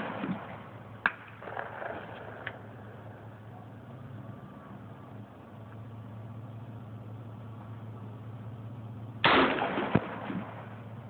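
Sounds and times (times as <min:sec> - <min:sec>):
rifle shot echoing: 0:00.0 - 0:02.7, 0:09.2 - 0:11.0
steady low hum: 0:00.0 - 0:11.0.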